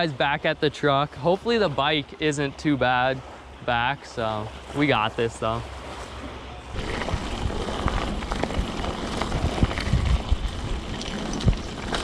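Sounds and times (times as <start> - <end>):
bike tyres crunching on gravel: 6.7 - 12.0
bike clicks and knocks: 6.8 - 12.0.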